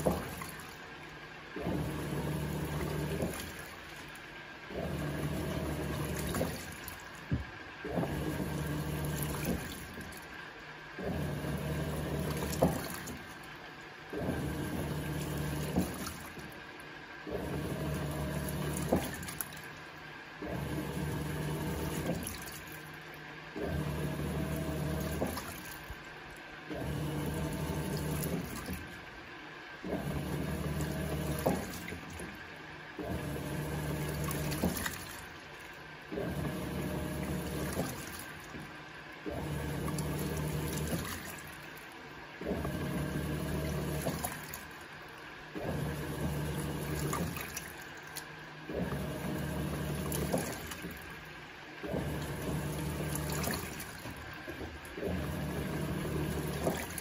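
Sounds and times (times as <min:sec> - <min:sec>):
washing machine motor pulsing: 0:00.0 - 0:57.0
water and clothes sloshing: 0:00.0 - 0:57.0.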